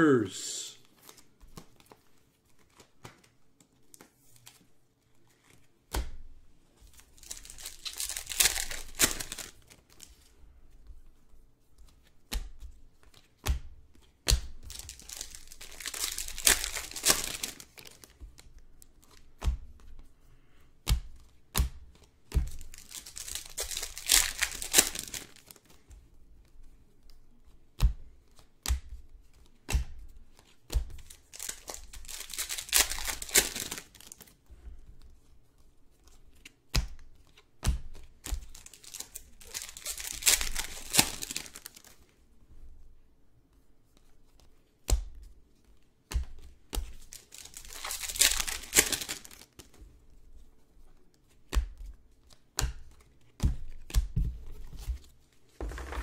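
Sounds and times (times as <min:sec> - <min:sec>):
foil wrappers tearing and crinkling: 0:07.2 - 0:09.7, 0:14.7 - 0:18.0, 0:22.6 - 0:25.4, 0:31.3 - 0:34.2, 0:38.5 - 0:41.9, 0:47.1 - 0:49.6.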